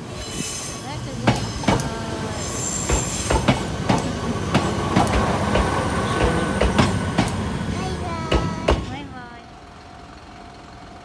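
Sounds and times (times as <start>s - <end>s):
train wheel squeal: 0.0s - 3.4s
passing train rumble: 0.0s - 11.0s
train wheels clacking over rail joints: 1.2s - 9.0s.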